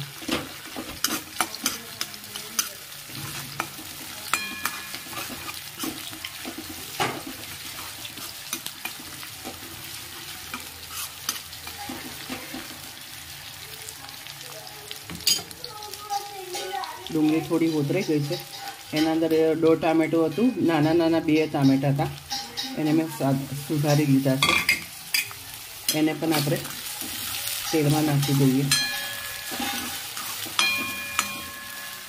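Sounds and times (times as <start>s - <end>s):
onions sizzling in oil: 0.0s - 32.0s
spatula scraping a pan: 0.1s - 13.1s, 16.5s - 32.0s
spatula tapping metal pan: 0.3s - 7.6s, 17.3s - 23.2s, 24.4s - 32.0s.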